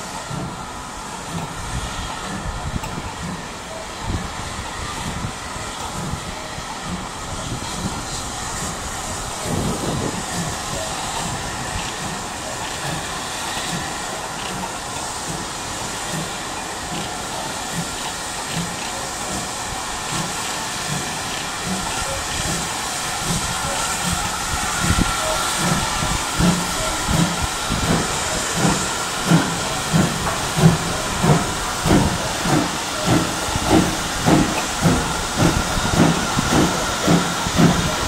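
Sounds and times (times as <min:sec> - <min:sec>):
steam hissing: 0:00.0 - 0:38.0
steam locomotive chugging: 0:00.0 - 0:38.0.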